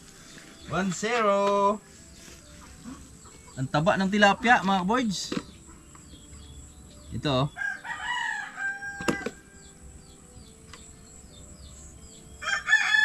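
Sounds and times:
rooster crowing: 7.6s - 9.7s, 12.4s - 13.0s.

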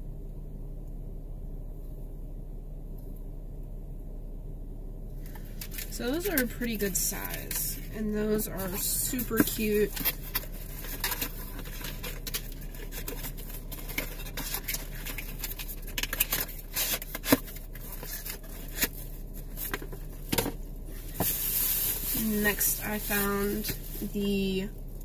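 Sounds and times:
packaging rustling and scraping: 5.2s - 24.7s.

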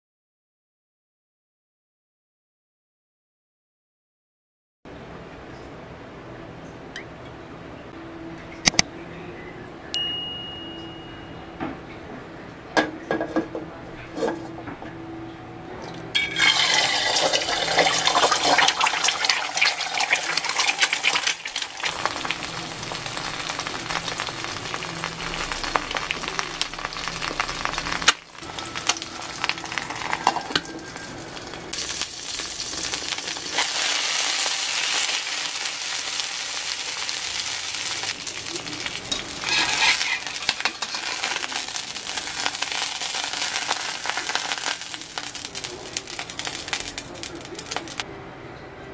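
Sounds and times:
egg sizzling in hot oil: 16.2s - 48.0s.

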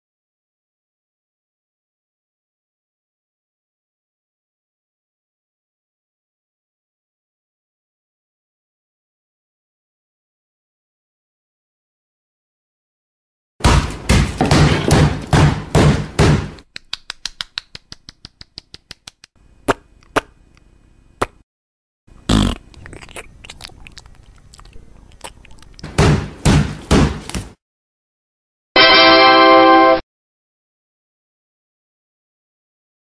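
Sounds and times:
cartoon heavy thumps: 13.6s - 16.6s, 25.8s - 27.6s
cartoon patter of sharp clicks: 16.6s - 20.4s.

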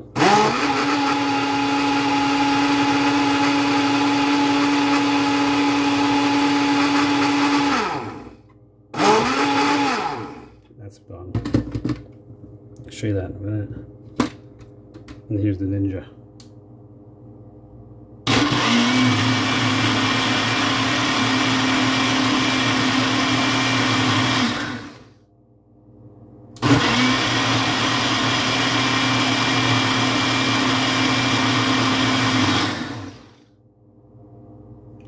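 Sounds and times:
blender running: 0.0s - 8.4s, 9.0s - 10.6s, 18.3s - 25.2s, 26.6s - 33.5s.

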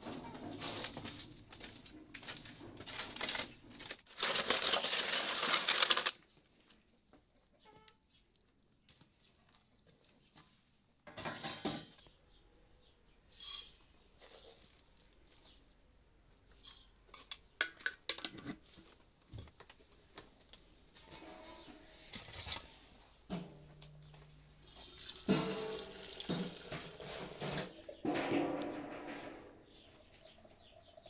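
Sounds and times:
aluminium foil rustling and scraping: 0.0s - 6.7s, 21.0s - 30.4s.

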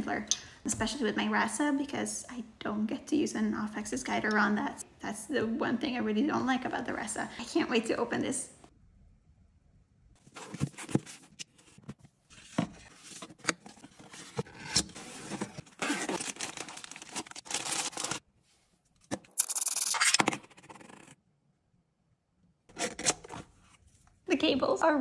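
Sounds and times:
cardboard box scraping and tapping: 10.2s - 15.7s
plastic bag rustling: 12.3s - 18.2s.

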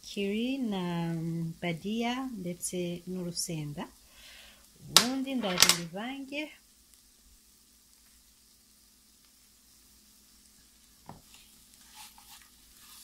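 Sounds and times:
vegetables sizzling in a pan: 0.0s - 13.0s
spatula scraping pan: 11.2s - 13.0s.

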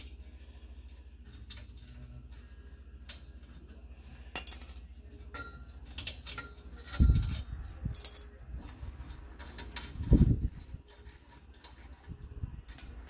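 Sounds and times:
metal bolt clinking: 8.0s - 8.3s.

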